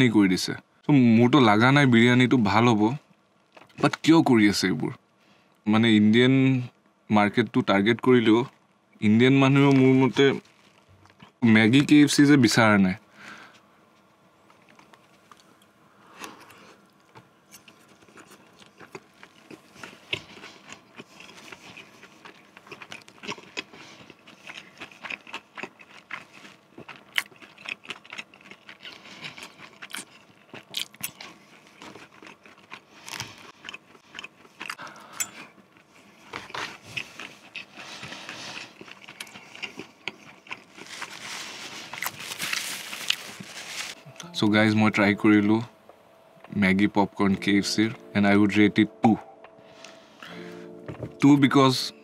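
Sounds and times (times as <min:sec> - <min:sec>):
chewing and crunching food: 0:09.5 - 0:11.4, 0:14.4 - 0:44.0.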